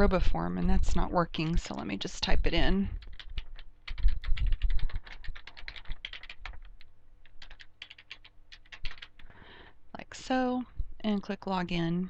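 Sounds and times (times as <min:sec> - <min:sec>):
keyboard typing: 0:03.0 - 0:09.3.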